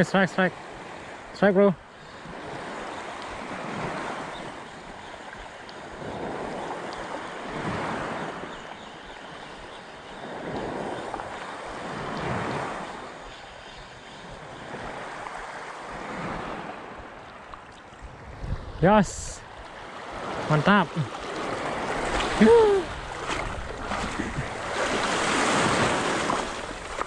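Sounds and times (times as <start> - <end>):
wind on microphone: 17.9 - 20.5, 21.2 - 27.0
waves washing over pebbles: 19.8 - 27.0.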